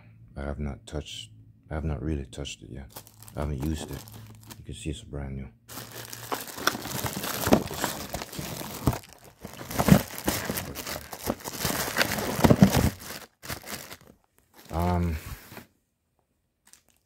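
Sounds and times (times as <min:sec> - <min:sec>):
plastic wrap crinkling: 0:02.9 - 0:04.6, 0:05.7 - 0:15.0.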